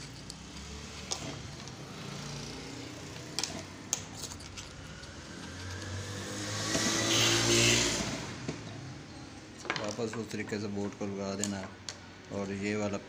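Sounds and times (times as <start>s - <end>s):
metal parts clicking: 3.2s - 6.0s
motor drone: 5.0s - 8.4s.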